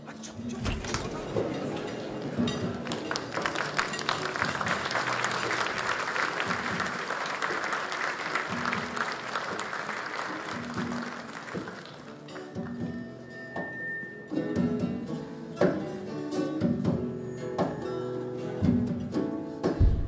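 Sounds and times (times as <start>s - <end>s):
background music: 0.0s - 20.0s
audience applauding: 0.8s - 12.8s.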